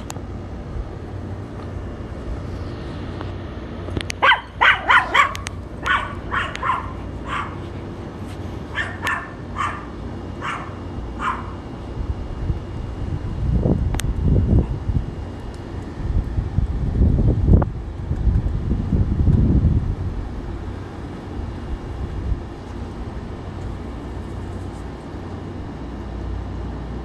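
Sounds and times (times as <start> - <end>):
small dog yapping barks: 4.2 - 7.7, 8.7 - 11.6.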